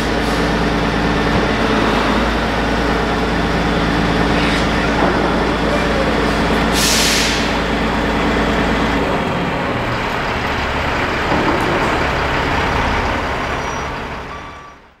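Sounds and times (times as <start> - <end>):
diesel engine idling: 0.0 - 15.0
air release hiss: 6.7 - 7.6.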